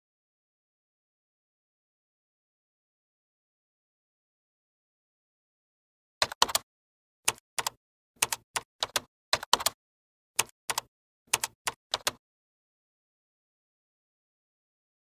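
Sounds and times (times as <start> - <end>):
keyboard key clicks: 6.2 - 6.6, 7.3 - 9.8, 10.4 - 12.2.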